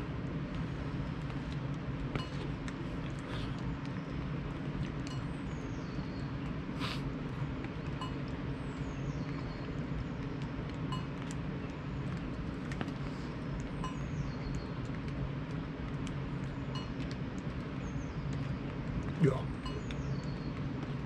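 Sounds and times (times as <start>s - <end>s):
low background rush: 0.0s - 21.0s.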